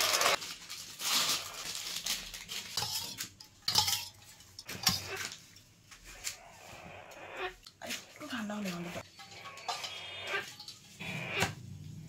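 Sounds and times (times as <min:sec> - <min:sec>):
plastic bag crinkling: 0:00.0 - 0:03.4
spoon clinking against steel bowl: 0:02.8 - 0:05.1.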